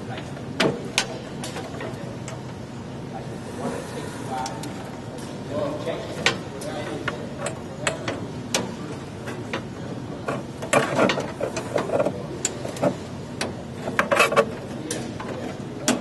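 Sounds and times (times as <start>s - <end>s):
connectors clicking against metal: 10.3s - 16.0s.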